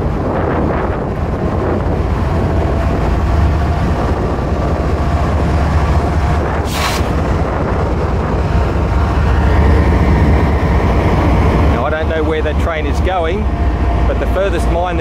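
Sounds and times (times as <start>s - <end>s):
locomotive engine rumbling: 0.0s - 15.0s
short hiss: 6.6s - 7.2s.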